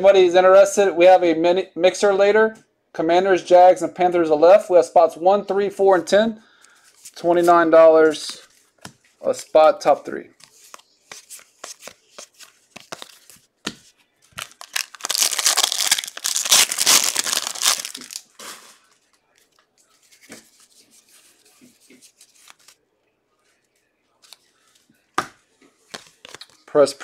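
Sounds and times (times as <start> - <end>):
cards clicking and rustling: 10.4 - 18.6, 24.2 - 26.6
wrapper tearing: 14.3 - 19.0.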